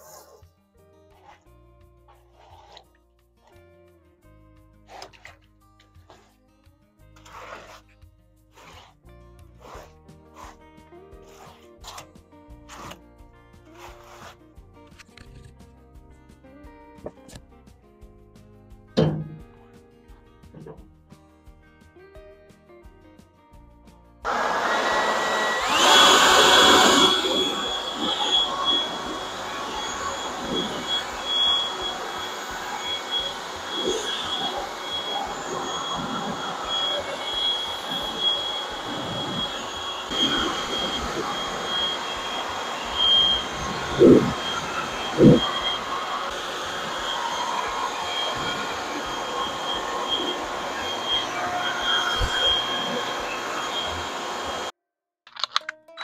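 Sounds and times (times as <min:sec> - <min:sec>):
leaf blower running: 0:24.3 - 0:54.7.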